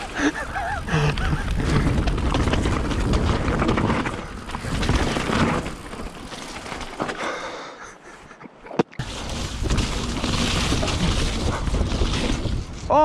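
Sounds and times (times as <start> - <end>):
wind rumbling on microphone: 0.0 - 6.2, 9.0 - 13.0
bike tyres rolling over mud and stones: 0.0 - 7.7, 9.0 - 13.0
bike rattling over bumps: 0.0 - 7.9, 9.0 - 13.0.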